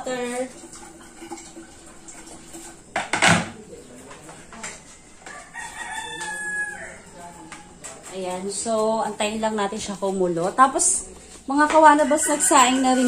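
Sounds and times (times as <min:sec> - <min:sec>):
rooster crowing: 0:04.9 - 0:07.8, 0:11.8 - 0:13.0.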